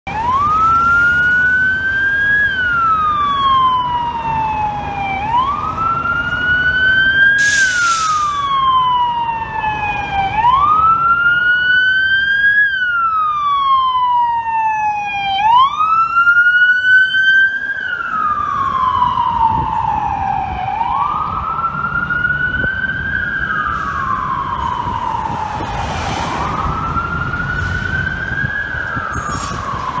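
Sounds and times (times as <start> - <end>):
street traffic: 0.0 - 30.0
siren wailing: 0.1 - 30.0
short hiss: 7.4 - 8.4.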